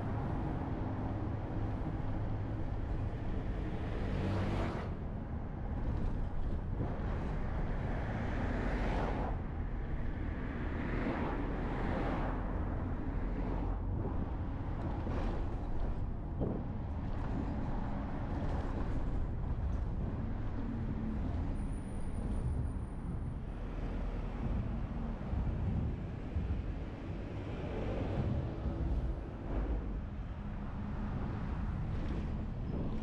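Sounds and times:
bus engine hum: 0:00.0 - 0:33.0
tyre and road noise: 0:00.0 - 0:33.0
traffic passing: 0:06.8 - 0:33.0.

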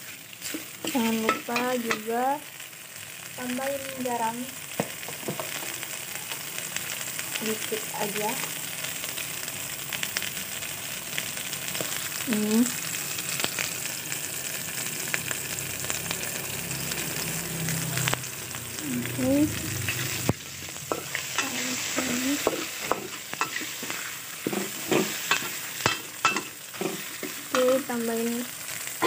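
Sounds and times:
food sizzling in hot oil: 0:00.0 - 0:29.0
metal spatula scraping pan: 0:19.9 - 0:27.9.

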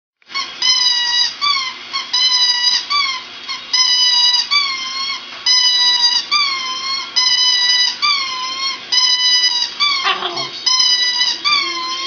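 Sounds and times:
dog howling: 0:09.8 - 0:12.0.

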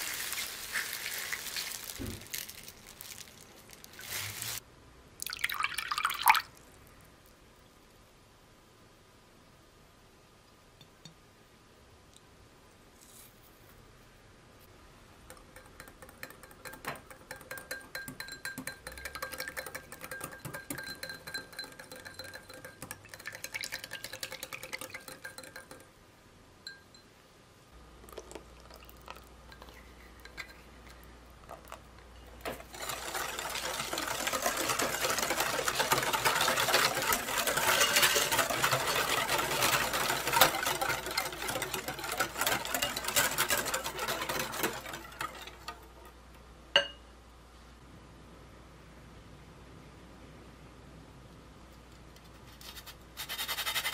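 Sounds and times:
wire whisk beating batter in glass bowl: 0:15.3 - 0:25.9, 0:32.4 - 0:46.2.

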